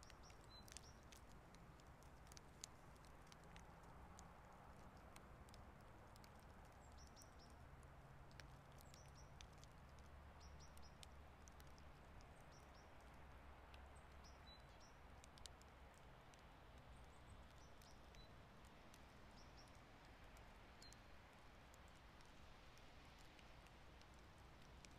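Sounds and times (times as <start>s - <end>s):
small birds chirping: 0.0s - 3.9s, 4.7s - 7.7s, 8.3s - 16.1s, 16.8s - 22.0s
light ticks: 0.0s - 24.9s.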